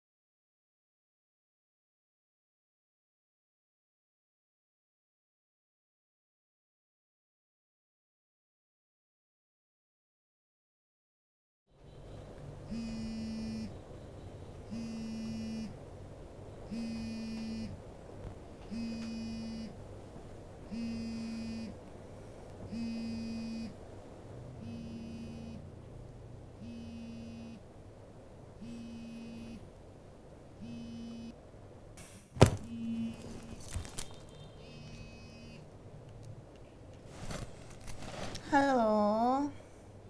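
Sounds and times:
phone buzzing on vibrate: 12.7s - 13.8s, 14.7s - 15.8s, 16.7s - 17.8s, 18.7s - 19.8s, 20.7s - 21.8s, 22.7s - 23.8s, 24.6s - 25.8s, 26.6s - 27.6s, 28.6s - 29.7s, 30.6s - 31.4s, 32.4s - 35.7s.

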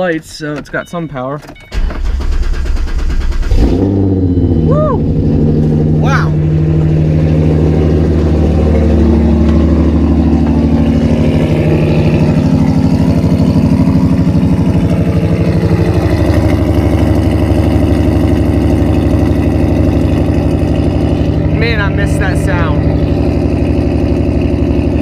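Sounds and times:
car engine idling loudly: 2.0s - 25.0s.

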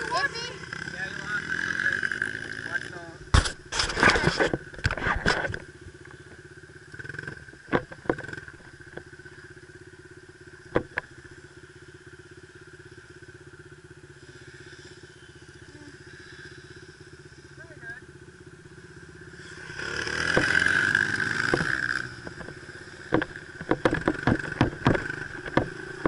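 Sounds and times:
dirt bike engine idling: 0.0s - 26.0s
sharp knocks: 21.4s - 26.0s.

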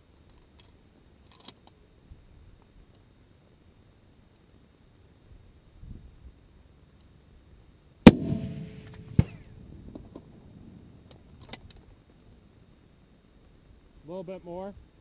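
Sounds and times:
rifle shot: 8.0s - 10.3s
sharp crack: 8.0s - 11.6s.

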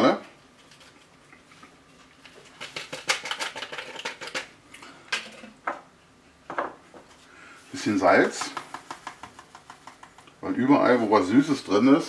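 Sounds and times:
packet shaken and tapped: 2.2s - 4.5s, 8.2s - 10.4s.

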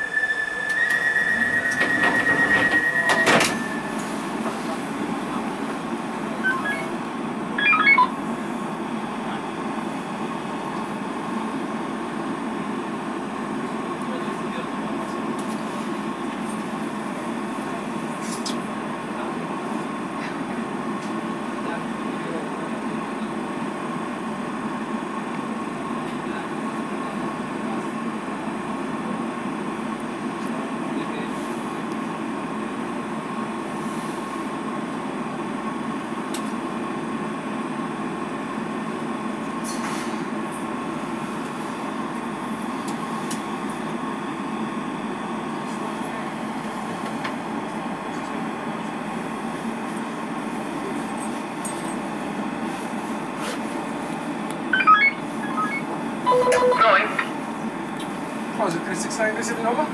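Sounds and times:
train equipment hum: 0.0s - 30.9s, 46.6s - 58.9s
faint high tone: 6.4s - 8.2s, 54.8s - 57.4s.

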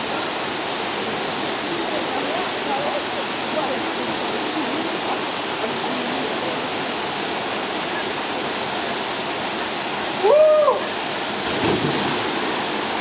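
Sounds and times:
waterfall rushing over rocks: 0.0s - 13.0s
person whooping: 10.2s - 10.9s
water splash burst: 11.4s - 13.0s.

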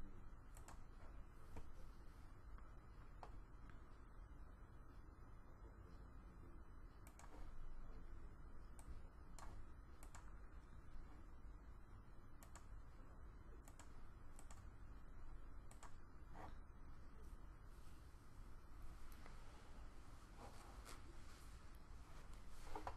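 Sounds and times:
low hum of room tone: 0.0s - 22.9s
faint computer mouse clicks: 0.5s - 0.9s, 7.0s - 7.5s, 8.7s - 10.3s, 12.4s - 12.7s, 13.6s - 14.7s, 15.6s - 16.6s.

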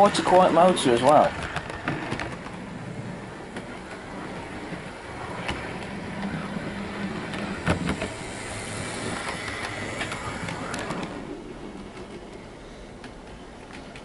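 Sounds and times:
model train motor hum: 0.0s - 12.0s.

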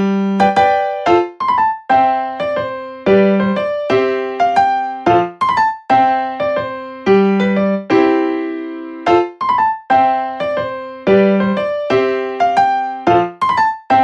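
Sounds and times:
light piano piece: 0.0s - 14.0s.

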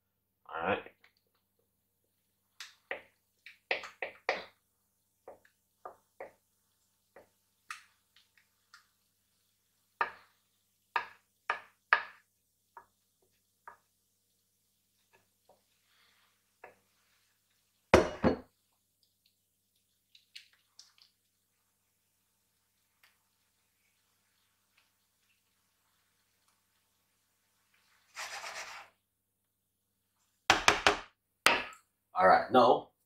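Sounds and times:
glass bowl and wooden spoon knocking: 18.0s - 18.5s
batter scraped into metal tin: 28.1s - 29.0s.

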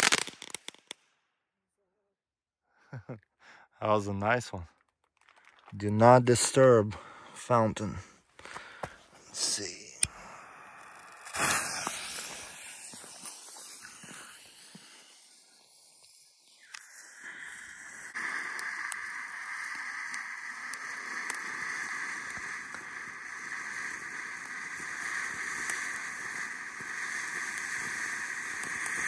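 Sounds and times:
firework fountain hissing: 0.0s - 0.8s, 9.2s - 29.0s
firework crackles: 0.0s - 1.0s, 8.8s - 29.0s.

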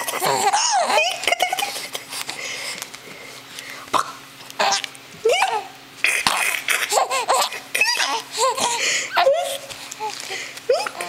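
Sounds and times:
infant giggling: 0.0s - 2.2s, 6.3s - 10.1s, 10.7s - 11.0s.

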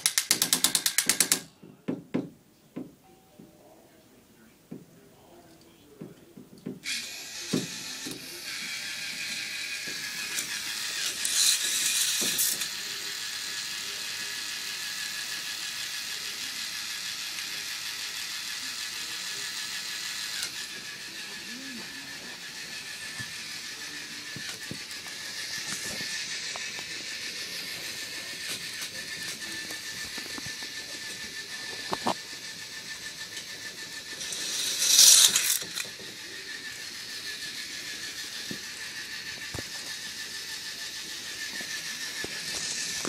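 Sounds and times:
motor whirring with plastic clatter: 6.8s - 43.0s
loud rattle: 22.5s - 43.0s.

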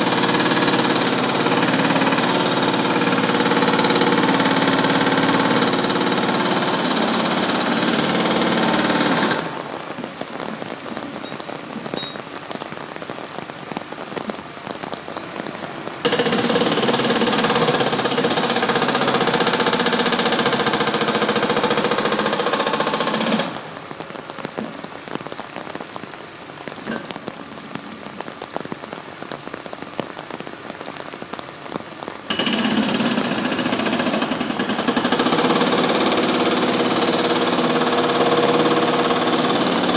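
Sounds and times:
excavator engine and hydraulics: 0.0s - 9.8s, 15.2s - 23.8s, 32.3s - 39.9s.

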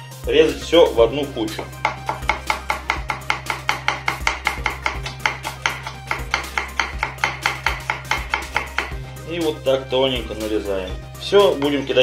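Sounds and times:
knife chopping on wooden board: 1.6s - 9.1s.

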